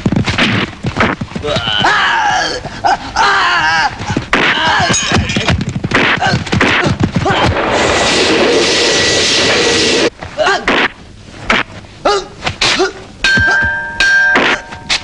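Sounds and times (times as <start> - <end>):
shouts and grunts: 1.4 - 5.3
punch and kick impacts: 4.3 - 7.7.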